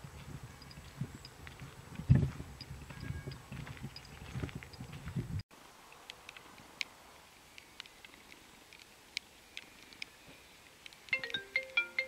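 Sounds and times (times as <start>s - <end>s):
phone ringtone melody: 11.2s - 12.0s.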